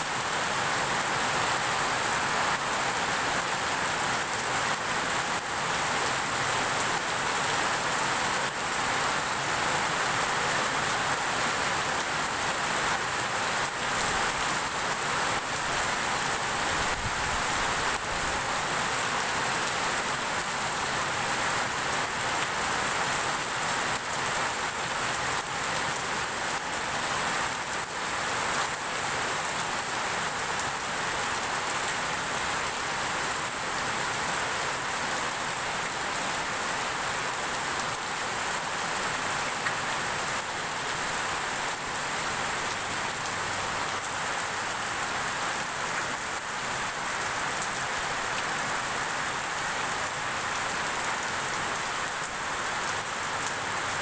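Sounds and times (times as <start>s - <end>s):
heavy rain: 0.0s - 54.0s.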